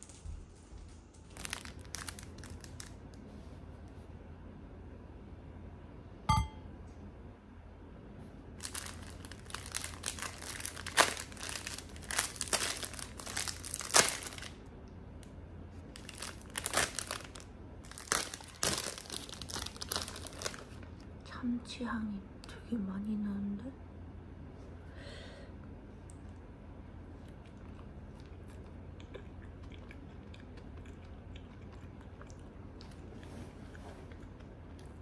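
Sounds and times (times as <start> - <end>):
plastic wrapper crinkling and tearing: 1.2 - 3.1, 8.6 - 14.6, 15.9 - 21.0.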